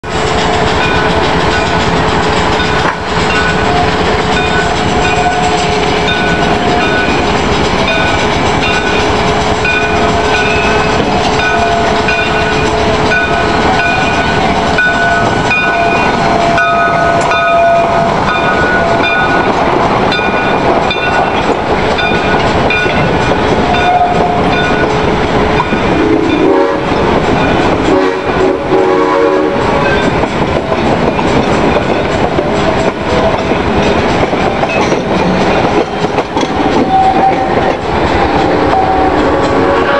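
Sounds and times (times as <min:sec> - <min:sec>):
freight cars clickety-clack: 0:00.0 - 0:39.9
steam locomotive passing: 0:00.0 - 0:39.9
steady ringing tones: 0:00.8 - 0:26.5.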